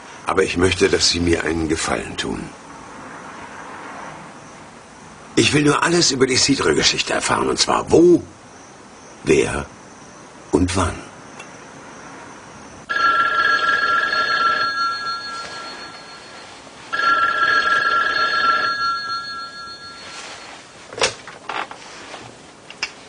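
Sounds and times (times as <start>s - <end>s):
telephone ringing: 12.9s - 20.8s.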